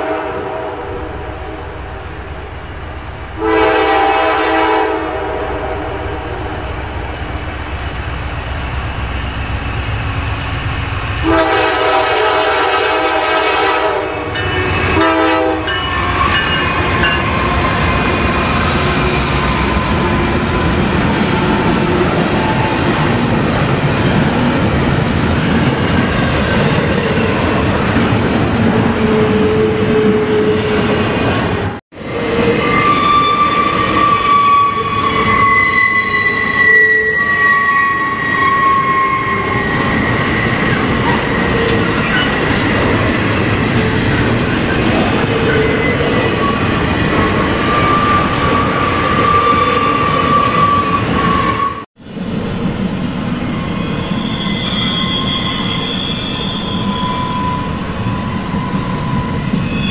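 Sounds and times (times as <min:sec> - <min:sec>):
locomotive air horn blasts: 0:00.0 - 0:01.6, 0:03.4 - 0:06.6, 0:11.2 - 0:17.2
train passing rumble: 0:00.0 - 0:35.6, 0:38.1 - 0:59.9
thin wheel squeals: 0:53.5 - 0:59.9.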